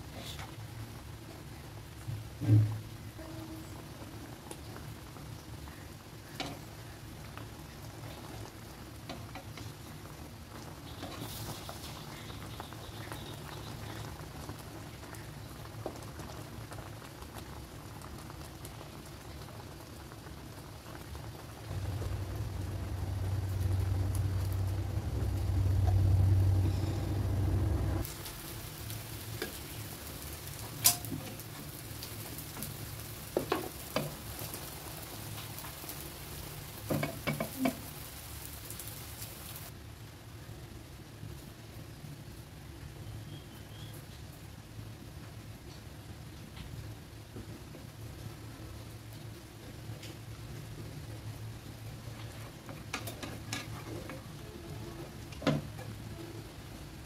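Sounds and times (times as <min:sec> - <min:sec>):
liquid bubbling and sizzling in pan: 0:00.0 - 0:57.0
low hum: 0:21.6 - 0:28.1.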